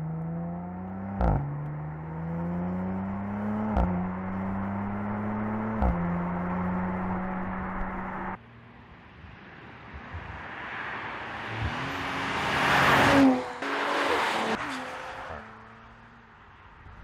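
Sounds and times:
car engine accelerating past: 10.5s - 16.0s.

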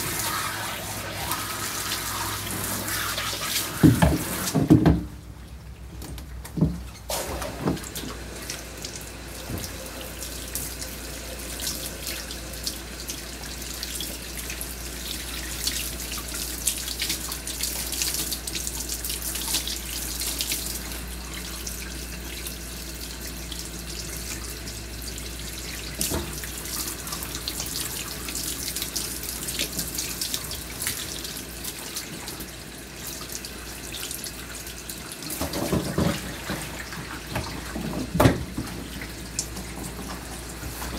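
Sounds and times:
water spraying from hose: 0.0s - 4.7s.

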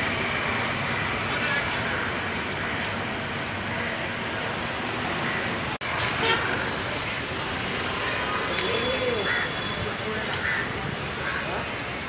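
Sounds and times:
street traffic: 0.0s - 12.0s
vehicle horn tooting: 6.1s - 6.6s.

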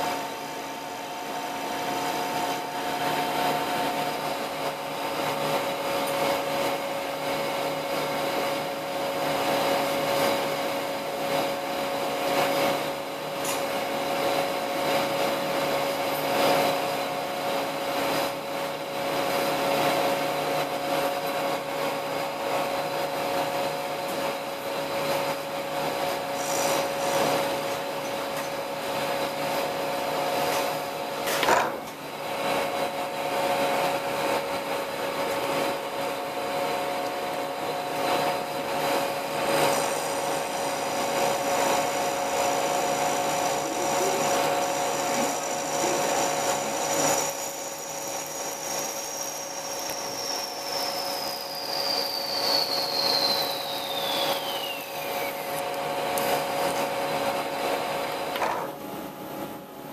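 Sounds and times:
high whine: 0.0s - 59.7s
motor hum: 36.5s - 52.3s
lathe tool scraping metal: 39.4s - 54.6s.

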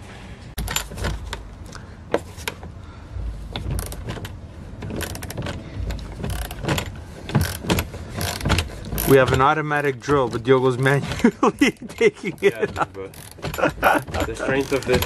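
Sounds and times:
ratchet pawl clicking: 6.2s - 9.4s, 12.4s - 15.0s.

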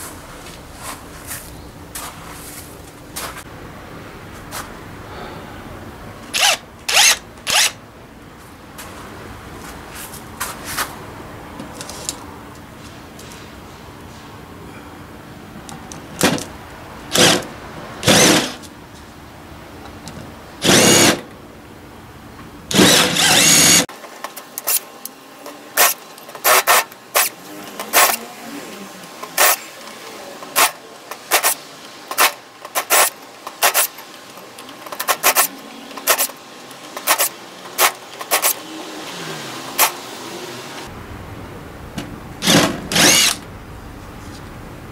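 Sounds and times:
power drill boring into metal: 6.4s - 7.8s, 17.1s - 18.6s, 20.6s - 21.2s, 22.7s - 23.9s, 42.4s - 43.4s.

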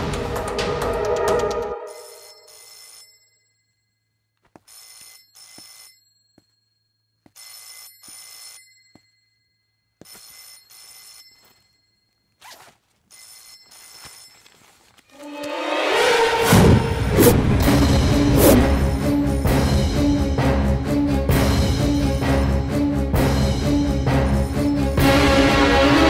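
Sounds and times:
background music: 0.0s - 2.3s, 15.2s - 26.0s
telephone ringing: 1.9s - 12.4s, 13.0s - 14.7s.

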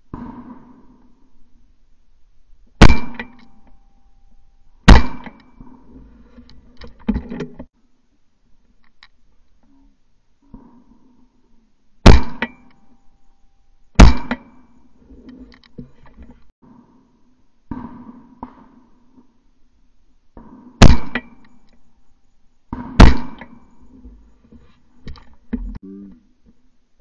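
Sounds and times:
loud sharp ringing knocks: 2.8s - 4.0s, 4.9s - 5.7s, 12.0s - 13.0s, 14.0s - 14.8s, 20.8s - 21.7s, 22.8s - 23.9s.

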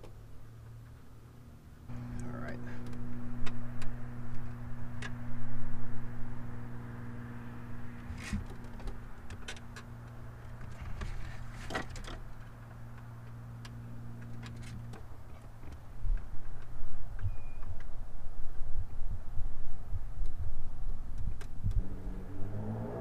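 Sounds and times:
steady low hum: 0.1s - 16.5s.

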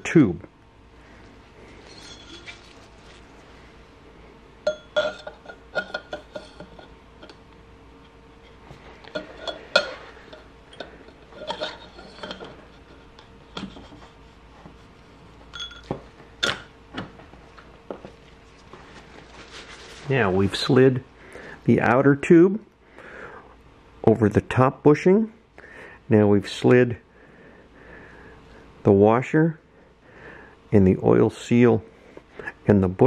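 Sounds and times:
metal fork tubes clinking: 1.8s - 3.2s, 4.6s - 7.4s, 9.0s - 13.0s, 15.5s - 16.7s.

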